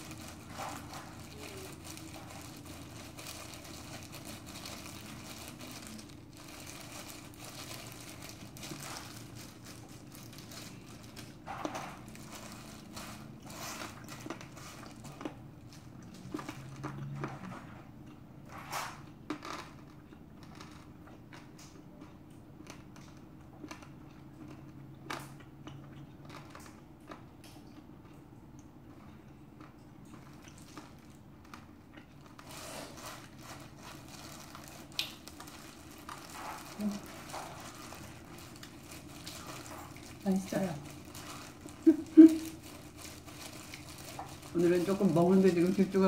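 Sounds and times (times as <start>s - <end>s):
plastic glove crinkling: 0.0s - 16.8s, 32.2s - 46.0s
chewing with crunches: 0.0s - 46.0s.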